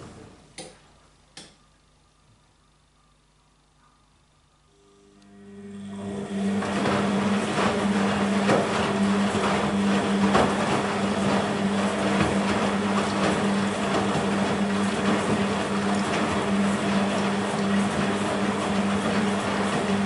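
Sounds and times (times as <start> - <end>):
washing machine motor humming: 4.7 - 20.0
laundry and water sloshing: 6.2 - 20.0.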